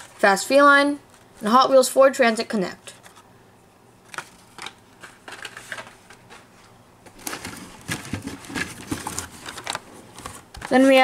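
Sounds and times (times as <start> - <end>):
packaging rustling: 7.1 - 11.0.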